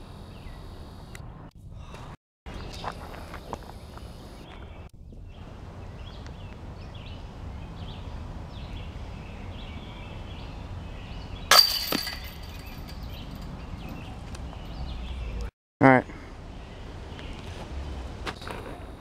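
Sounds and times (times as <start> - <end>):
disc hitting metal chains: 11.5 - 13.5
small metallic clank: 11.5 - 13.5.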